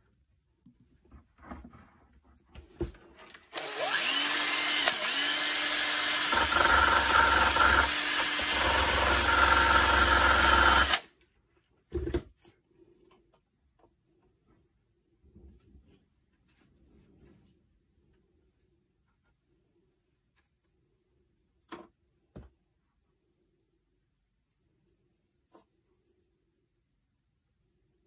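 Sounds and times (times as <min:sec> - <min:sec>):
drill sanding drum grinding: 0:03.6 - 0:11.0.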